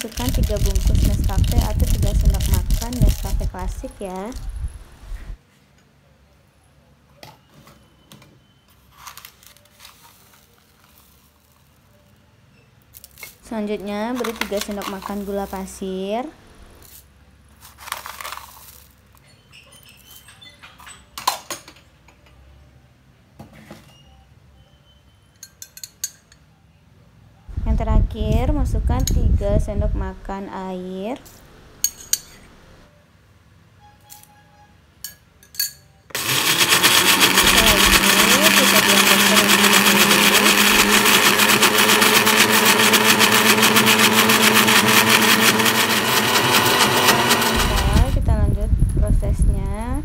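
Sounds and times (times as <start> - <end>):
electric blender running: 0.0 - 3.8, 36.1 - 48.3.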